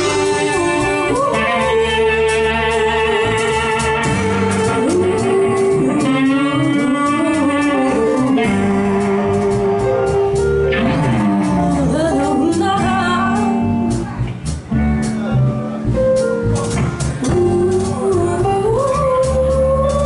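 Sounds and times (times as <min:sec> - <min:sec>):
woman singing into microphone: 0:00.0 - 0:09.0, 0:11.5 - 0:13.7, 0:17.2 - 0:20.0
bass guitar: 0:00.0 - 0:20.0
electric guitar: 0:00.0 - 0:20.0.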